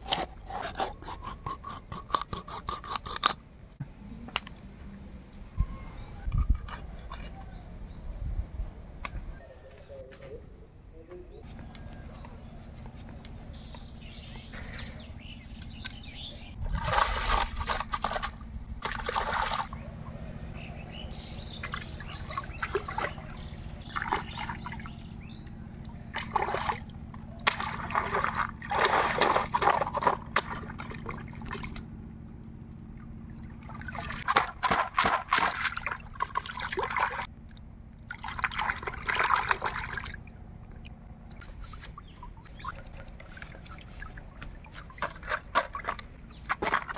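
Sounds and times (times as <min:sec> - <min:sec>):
water sloshing and splashing: 0:15.6 - 0:19.9, 0:21.4 - 0:46.9.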